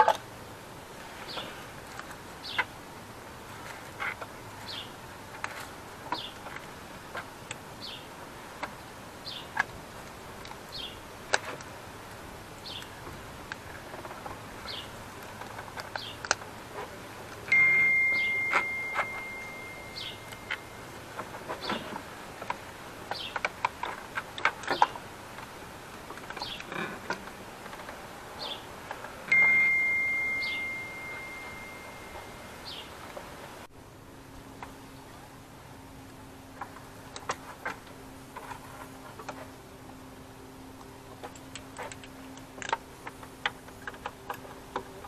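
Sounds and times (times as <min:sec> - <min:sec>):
small bird chirping: 0:04.6 - 0:04.9, 0:14.6 - 0:15.0, 0:17.5 - 0:21.0, 0:23.1 - 0:23.5, 0:29.3 - 0:33.0
ringing tone: 0:17.5 - 0:20.9, 0:29.3 - 0:32.8.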